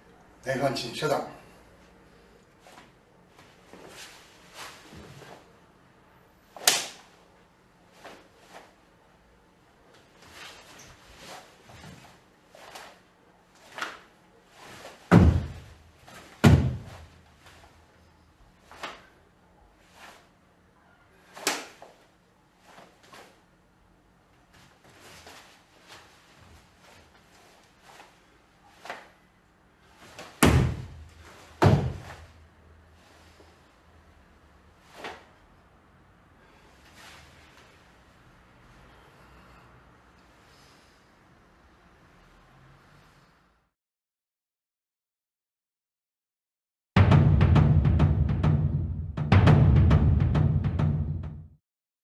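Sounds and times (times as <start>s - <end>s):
cloth rustling: 2.6s - 5.6s, 10.0s - 19.2s, 24.4s - 29.2s
cloth snapping and swishing: 6.6s - 7.2s, 13.6s - 17.7s, 21.3s - 22.0s, 28.7s - 29.2s
sharp impacts on wooden floor: 14.7s - 17.2s, 30.2s - 32.3s
feet stamping on wooden floor: 15.1s - 15.8s, 16.4s - 17.2s.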